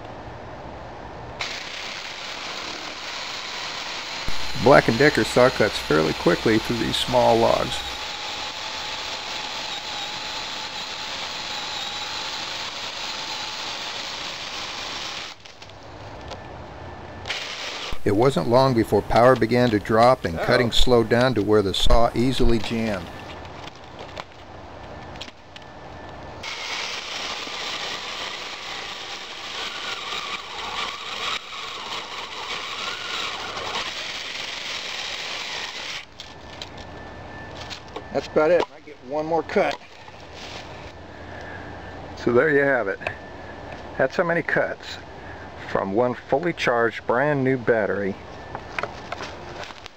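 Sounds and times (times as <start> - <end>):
electric chainsaw cutting wood: 1.4 - 15.5, 17.3 - 18.7, 26.4 - 36.1.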